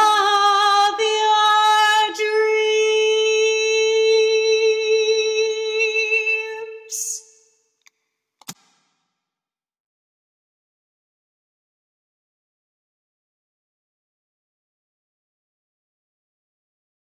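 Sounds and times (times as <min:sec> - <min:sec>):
woman singing a held note: 0:02.1 - 0:07.3.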